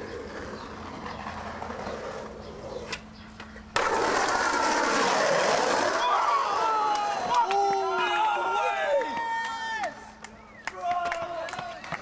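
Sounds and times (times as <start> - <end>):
skateboard wheels rolling on asphalt: 0.0 - 7.8.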